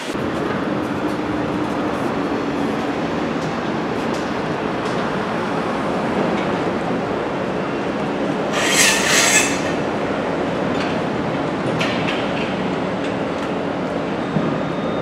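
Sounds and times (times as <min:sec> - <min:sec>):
high-pitched metallic squeal: 0:08.5 - 0:09.9.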